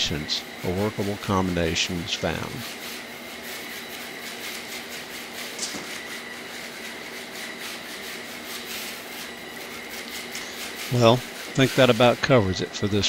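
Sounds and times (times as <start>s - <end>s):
gear motors whirring and rattling: 0.0s - 13.0s
steady high tone: 10.9s - 13.0s.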